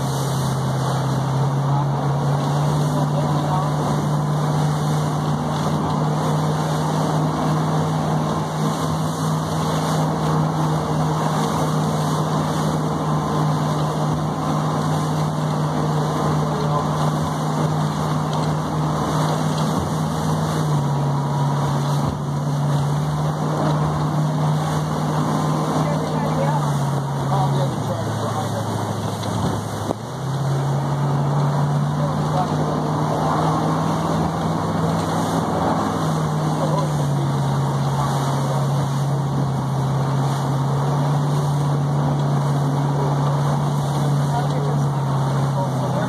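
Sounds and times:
motorboat engine running: 0.0 - 46.0
water splashing against hull: 0.0 - 46.0.

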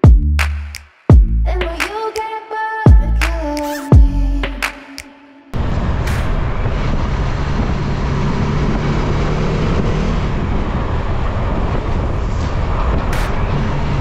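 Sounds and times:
wind rushing on microphone: 5.6 - 14.0.

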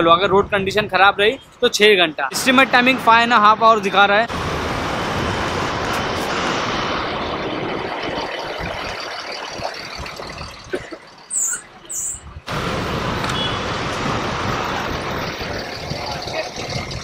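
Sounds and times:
road traffic and bus engines: 0.0 - 17.0.

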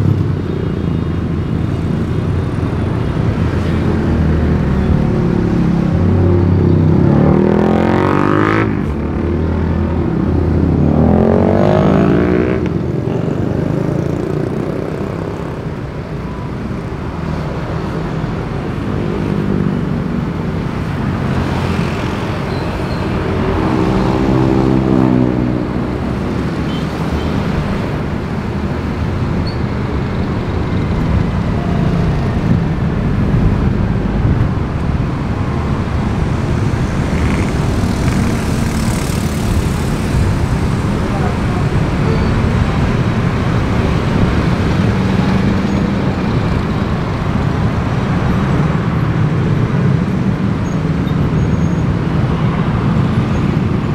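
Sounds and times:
traffic rumble of engines and tyres: 0.0 - 53.9
engines revving: 17.8 - 50.5.

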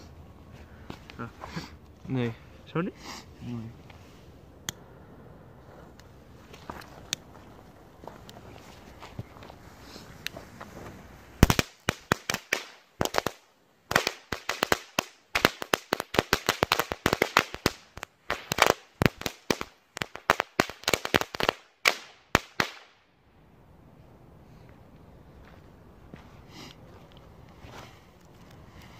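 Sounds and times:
firework fuse hissing: 9.6 - 22.7
firework crackling pops: 9.9 - 23.1.

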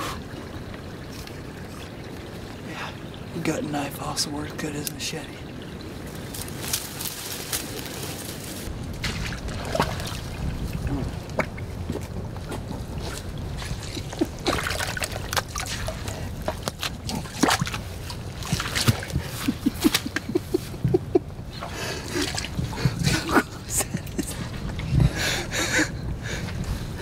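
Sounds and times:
boots squelching through mud: 6.2 - 20.2
low rumble: 7.8 - 27.0.

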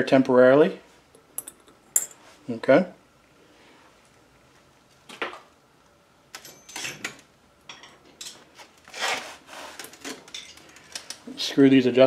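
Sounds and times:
small metal parts clinking: 1.4 - 2.2.

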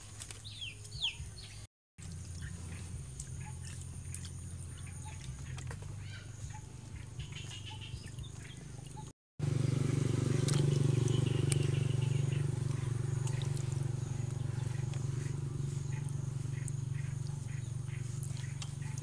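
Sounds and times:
water splashes and clicks: 0.1 - 0.5, 2.0 - 6.0, 10.3 - 15.3, 15.9 - 19.0
steady low drone: 2.0 - 19.0.

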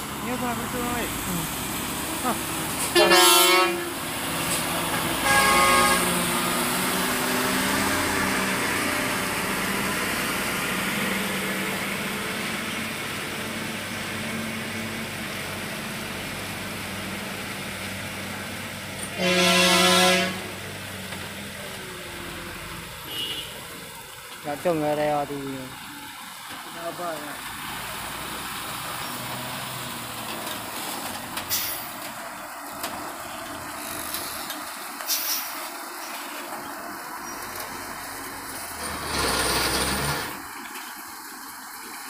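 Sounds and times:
vehicle engine running: 0.0 - 3.0
vehicle horn: 2.9 - 4.0, 4.9 - 6.3, 19.1 - 20.6, 23.1 - 23.6.

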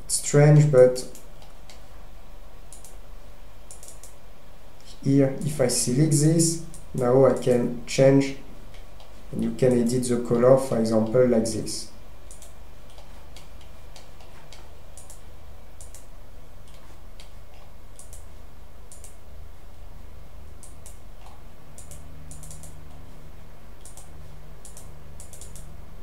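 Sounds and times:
low hum and hiss: 0.0 - 26.0
computer mouse clicks: 2.7 - 3.0, 3.7 - 4.2, 12.3 - 15.2, 15.8 - 18.3, 18.9 - 19.2, 20.6 - 23.0, 23.8 - 25.7.

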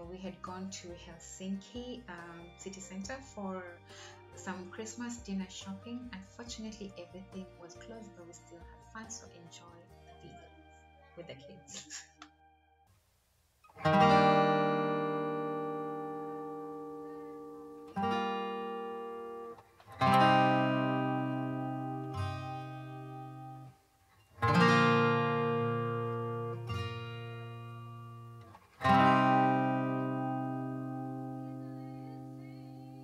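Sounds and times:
acoustic guitar chords ringing: 13.7 - 33.0.

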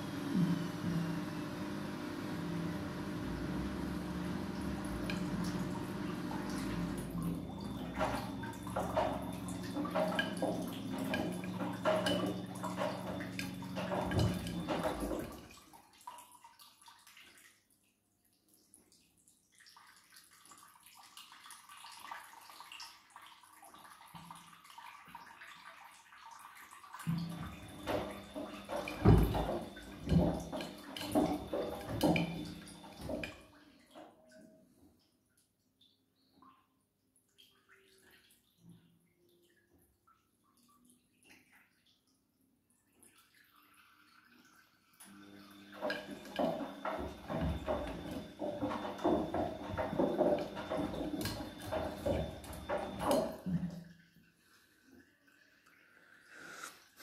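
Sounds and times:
washing machine drum thuds: 0.0 - 15.5, 27.1 - 33.4, 45.8 - 53.8
washing machine motor humming: 0.0 - 15.5, 27.1 - 33.4, 45.0 - 53.8
laundry sloshing and splashing: 0.0 - 17.8, 19.4 - 34.3, 45.6 - 56.1.

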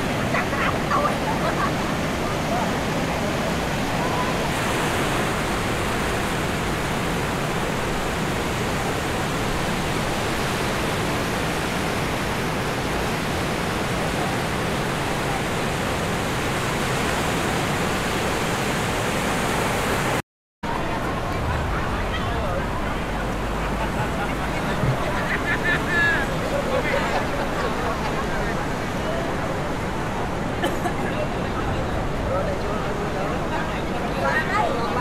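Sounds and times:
waves breaking on beach: 0.0 - 35.0.

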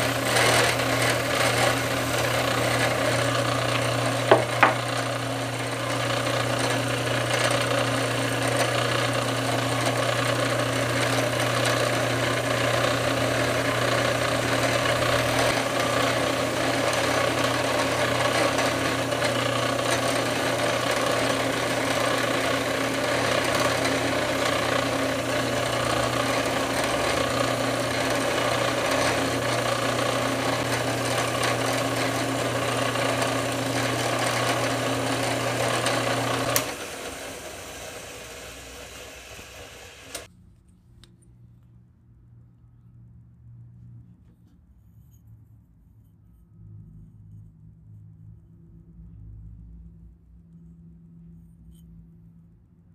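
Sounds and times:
power grinder whirring: 0.0 - 40.3.

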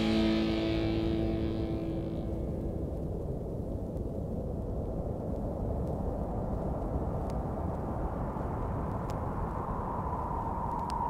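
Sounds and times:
low rumbling noise: 0.0 - 6.9
faint click: 10.7 - 11.0.

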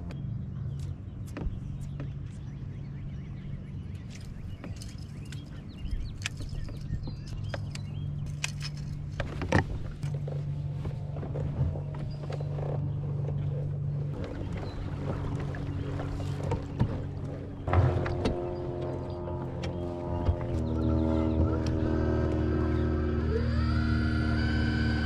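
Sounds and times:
low motor hum: 0.0 - 25.0
gear clicks and knocks: 3.9 - 14.5.

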